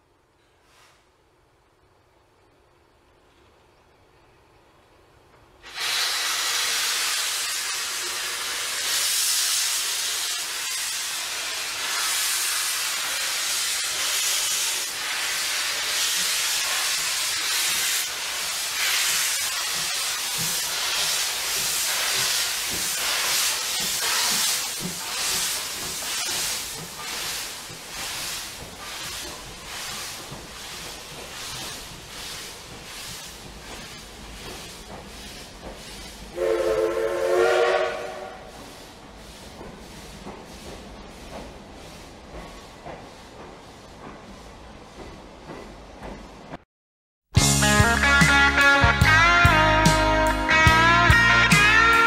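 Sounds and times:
steam venting hiss: 5.6 - 45.6.

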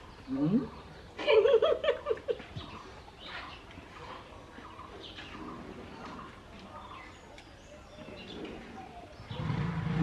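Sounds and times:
stifled laughter through food: 1.2 - 2.7.

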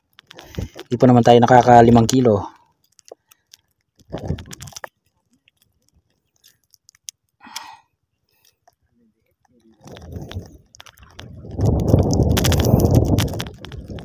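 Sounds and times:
small clicks: 2.6 - 7.7
wet splashes and rustles: 3.0 - 7.1, 9.6 - 14.0.

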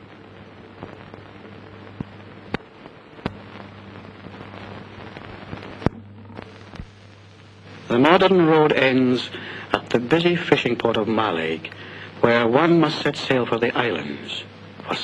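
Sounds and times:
steady film hiss: 0.0 - 15.0
low hum: 0.1 - 12.8
sharp clicks and pops: 1.9 - 7.0.

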